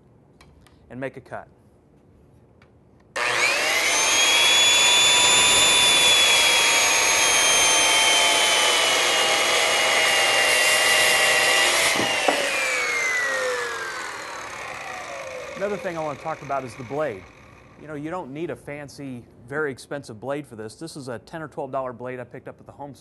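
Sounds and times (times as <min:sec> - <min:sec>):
circular saw cutting wood: 0:03.2 - 0:18.2.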